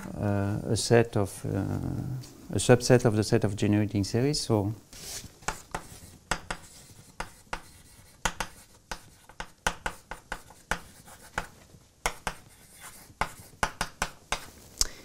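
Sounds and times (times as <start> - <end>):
chalk tapping and scratching: 5.0 - 14.7.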